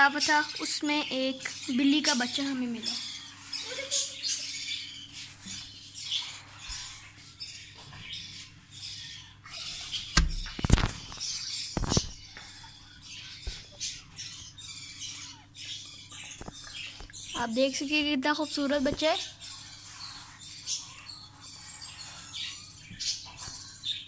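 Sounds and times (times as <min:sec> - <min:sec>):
high-pitched animal calls: 0:02.8 - 0:07.9
loud thumps: 0:10.1 - 0:10.9.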